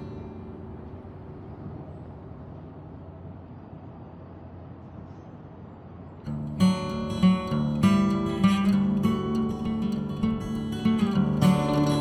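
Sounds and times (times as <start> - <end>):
strummed guitar chords: 6.3 - 12.0.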